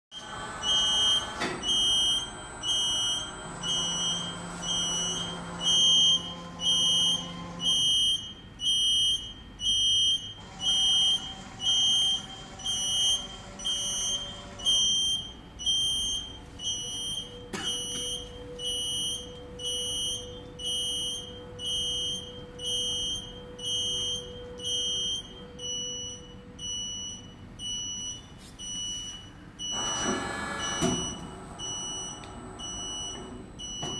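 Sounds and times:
electronic warning beeps: 0:00.2 - 0:33.9
faint hydraulic hum: 0:09.6 - 0:33.9.

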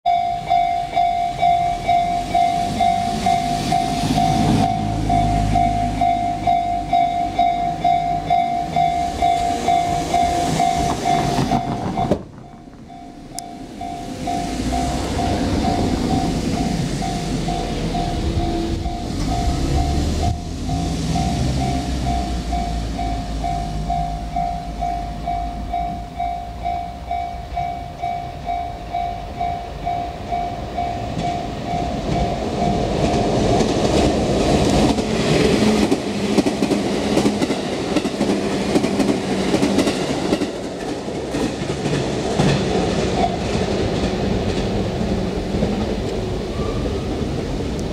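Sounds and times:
level crossing bell ringing: 0:00.1 - 0:33.0
electric train rumbling: 0:00.1 - 0:47.9.

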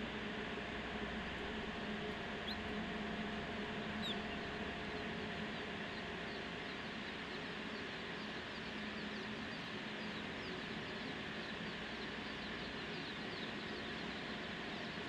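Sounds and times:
ventilation hum and hiss: 0:00.0 - 0:15.0
chicks peeping: 0:02.1 - 0:02.8, 0:03.9 - 0:15.0.

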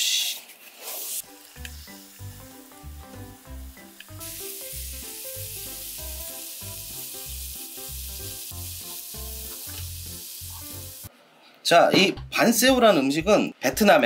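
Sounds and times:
food sizzling in a hot pan: 0:00.0 - 0:11.1
background music with beat: 0:12.0 - 0:13.4.

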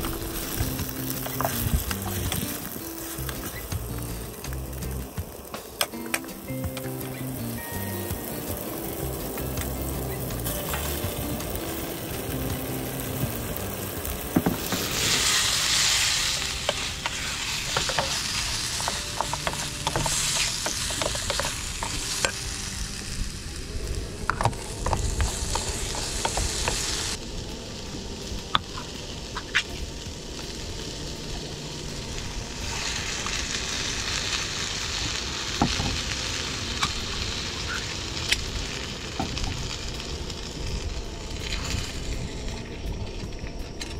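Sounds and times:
vegetables sizzling in a pan: 0:00.0 - 0:43.7.

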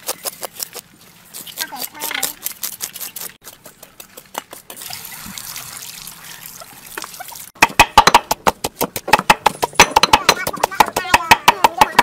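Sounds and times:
pestle pounding paste in mortar: 0:01.4 - 0:04.9, 0:07.6 - 0:12.0
water trickling and splashing: 0:04.8 - 0:07.6.

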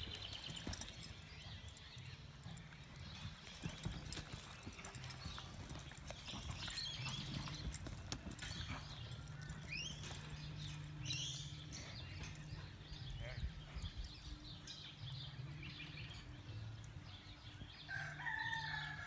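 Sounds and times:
hooves thudding in sand: 0:00.0 - 0:15.1.

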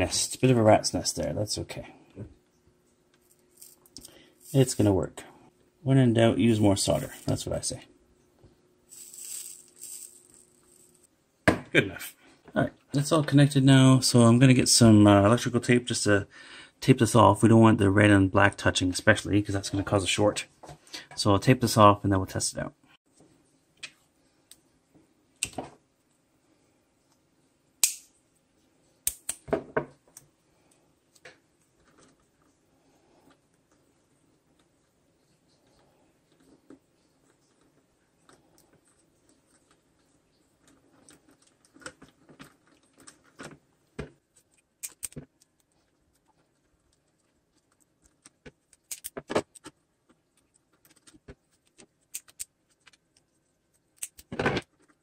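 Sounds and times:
electrical tape crackling: 0:33.3 - 0:55.0
electrical tape pulled and wrapped: 0:50.4 - 0:55.0.

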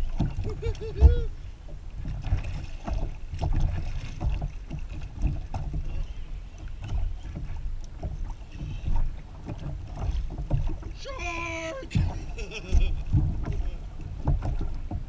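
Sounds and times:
water slapping against kayak hull: 0:00.0 - 0:15.0
wind rumble on microphone: 0:11.7 - 0:15.0.

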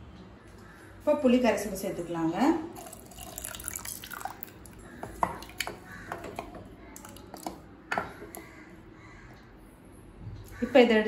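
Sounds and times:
liquid pouring into dal: 0:02.8 - 0:08.5
wet squelching stirring: 0:02.8 - 0:09.4.

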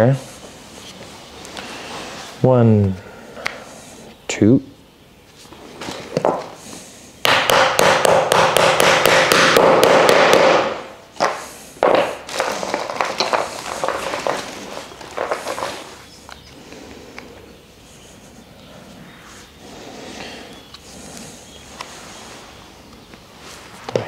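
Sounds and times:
hammer tapping on wood: 0:07.2 - 0:13.4
hard hammer knocks: 0:07.2 - 0:13.4.

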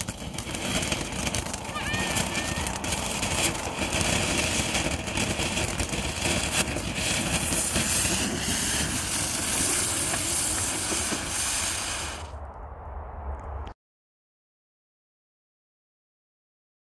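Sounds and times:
firework sharp pops: 0:00.0 - 0:12.3
firework fountain hissing: 0:00.0 - 0:12.4.

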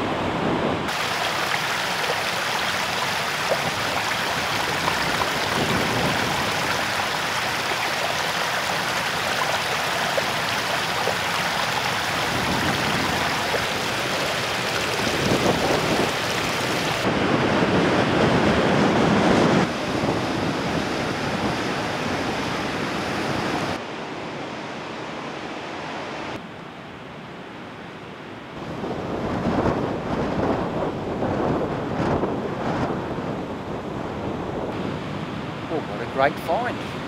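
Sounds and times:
ocean surf breaking on rocks: 0:00.1 - 0:18.4
creek splashing over rocks: 0:00.9 - 0:17.1.

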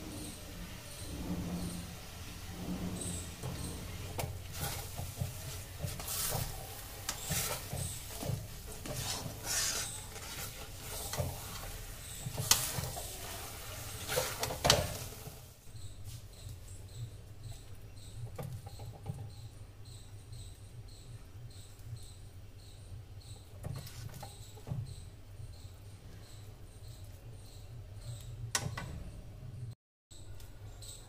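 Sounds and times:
spatula scraping metal pan: 0:00.0 - 0:15.5.

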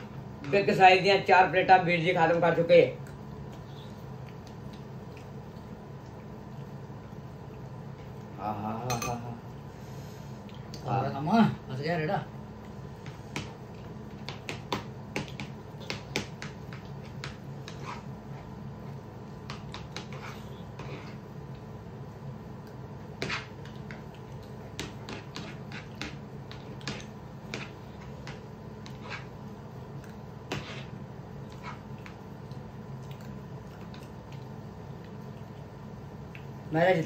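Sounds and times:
steady hum: 0:00.0 - 0:37.0
chewing sounds: 0:03.0 - 0:08.3, 0:31.4 - 0:36.5.

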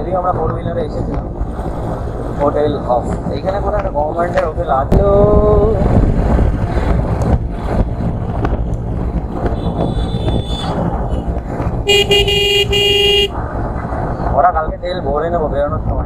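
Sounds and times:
wind buffeting: 0:00.0 - 0:14.9
motorcycle road noise rumble: 0:00.0 - 0:16.0
vehicle horn honking: 0:09.6 - 0:13.4.

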